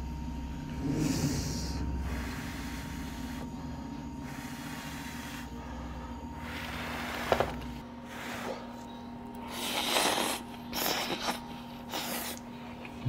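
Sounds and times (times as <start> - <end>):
steady background hum: 0.0 - 13.0
person eating: 8.2 - 13.0.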